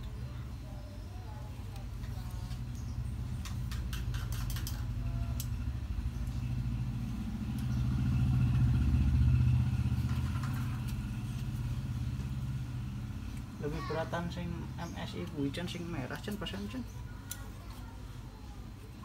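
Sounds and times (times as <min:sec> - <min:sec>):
vehicle engine rumbling: 0:00.0 - 0:19.0.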